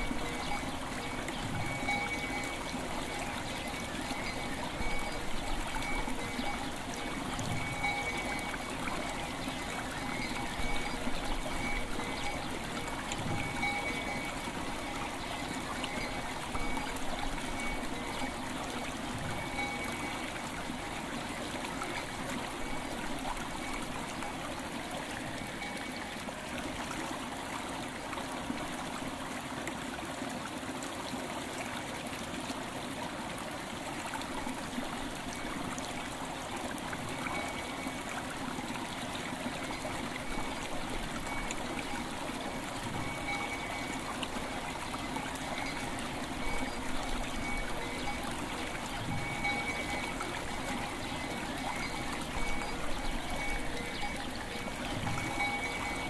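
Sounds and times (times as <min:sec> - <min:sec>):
faint bell tone: 0:00.0 - 0:12.6, 0:13.2 - 0:15.2, 0:15.8 - 0:18.3, 0:19.3 - 0:20.4, 0:25.6 - 0:26.2, 0:41.2 - 0:48.2, 0:49.0 - 0:56.0
river water flowing: 0:00.0 - 0:56.0.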